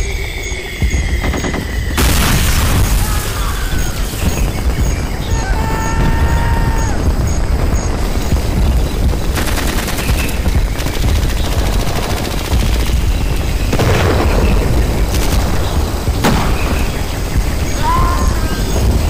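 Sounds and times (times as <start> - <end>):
continuous low rumble: 0.0 - 19.0
rapid gunfire: 1.1 - 5.4, 7.0 - 17.6.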